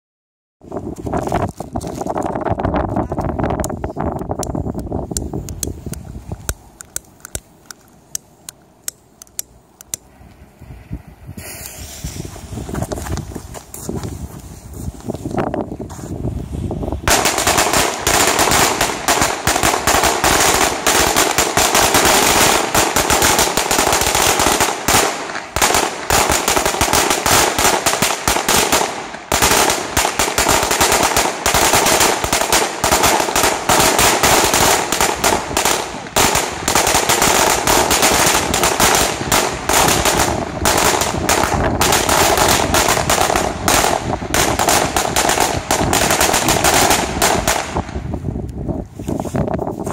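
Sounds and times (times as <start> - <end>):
firecrackers banging rapidly: 17.0 - 48.0.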